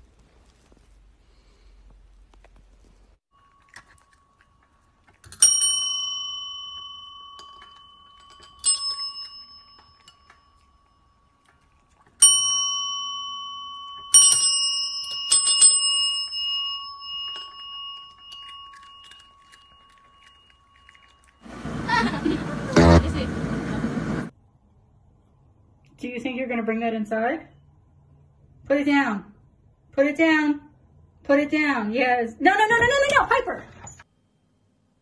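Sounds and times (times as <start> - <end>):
service bell dinging: 5.4 - 10.5, 12.2 - 20.0.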